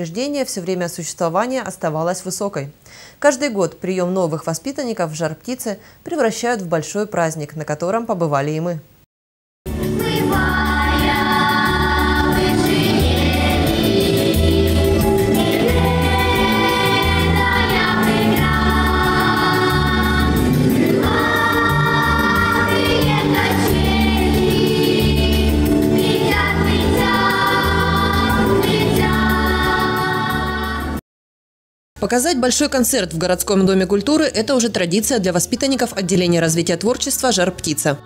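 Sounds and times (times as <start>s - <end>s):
instrumental accompaniment: 9.7s - 30.8s
children's choir singing: 9.9s - 31.0s.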